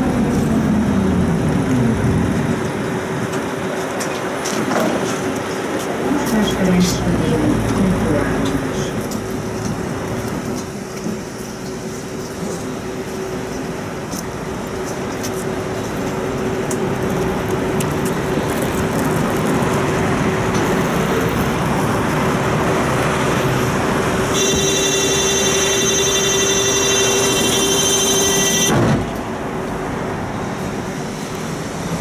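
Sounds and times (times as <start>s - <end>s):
road traffic and street noise: 0.0s - 32.0s
tram low hum: 0.0s - 32.0s
shrill continuous buzzer: 24.4s - 28.8s.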